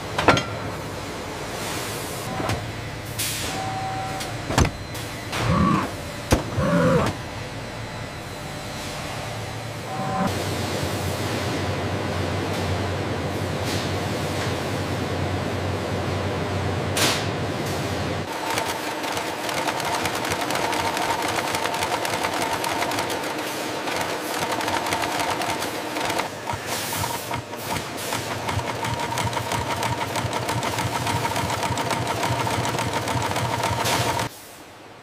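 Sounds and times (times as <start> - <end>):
sewing machine running: 18.3 - 34.3.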